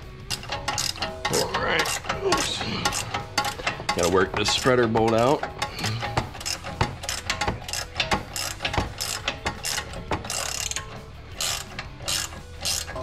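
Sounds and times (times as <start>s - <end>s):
ratchet wrench clicking: 0.1s - 13.0s.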